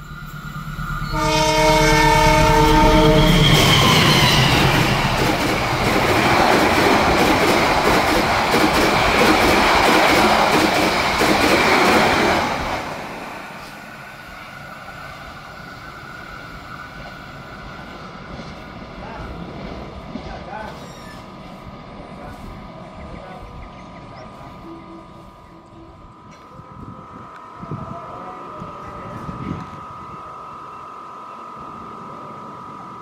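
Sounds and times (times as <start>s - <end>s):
train passing with rail clatter: 0.0s - 33.0s
locomotive horn blast: 1.0s - 5.1s.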